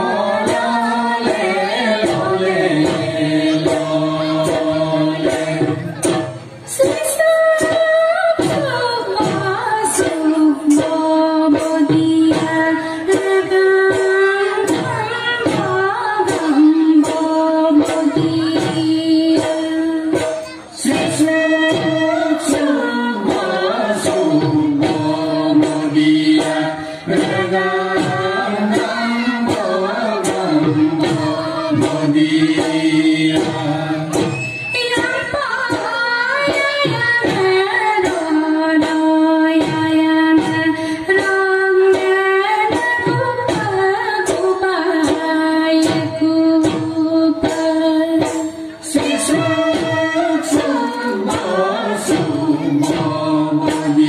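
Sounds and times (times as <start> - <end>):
steady drum beat: 0.0 - 54.0
woman singing folk song: 6.8 - 20.2, 34.8 - 52.8.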